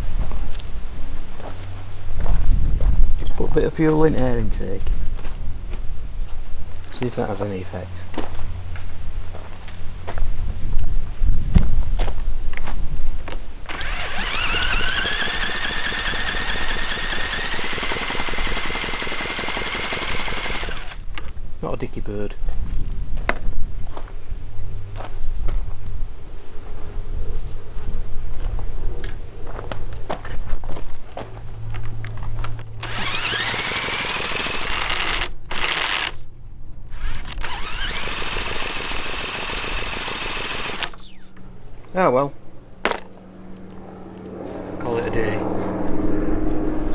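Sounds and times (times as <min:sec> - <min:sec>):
cordless drill motor whine: 0:13.7 - 0:21.1, 0:32.8 - 0:36.3, 0:36.9 - 0:41.4
engine rattling as turned: 0:13.7 - 0:21.1, 0:31.8 - 0:36.2, 0:36.9 - 0:41.3.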